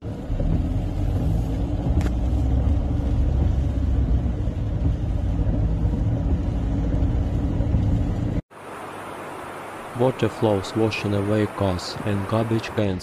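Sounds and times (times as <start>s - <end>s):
car interior low rumble: 0.0s - 8.4s
rain and water hissing: 0.0s - 13.0s.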